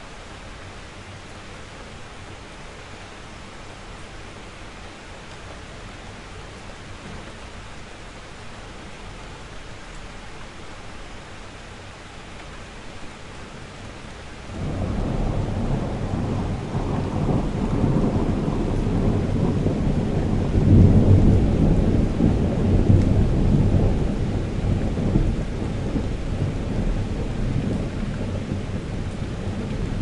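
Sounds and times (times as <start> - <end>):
steady rain: 0.0 - 30.0
distant thunder rumble: 14.5 - 30.0.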